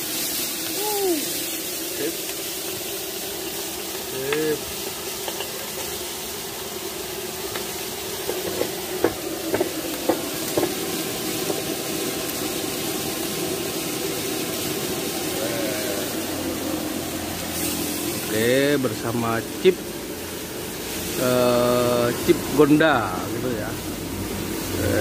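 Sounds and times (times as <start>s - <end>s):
chicken skin sizzling in oil: 0.0s - 25.0s.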